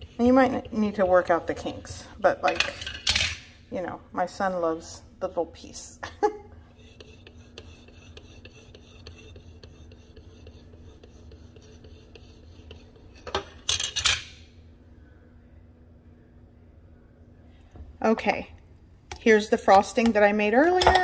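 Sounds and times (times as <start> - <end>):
utensil scraping cake and pan: 0.0 - 3.0, 6.7 - 14.0
faint hum: 0.0 - 21.0.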